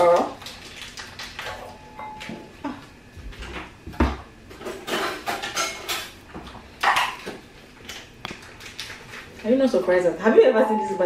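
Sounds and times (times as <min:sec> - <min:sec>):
dishes and utensils clattering: 0:04.5 - 0:06.2, 0:06.8 - 0:07.4.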